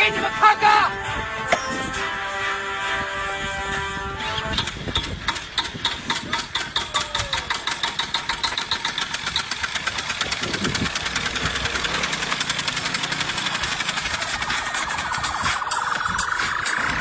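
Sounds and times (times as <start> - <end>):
small motorcycle engine running: 4.5 - 17.0.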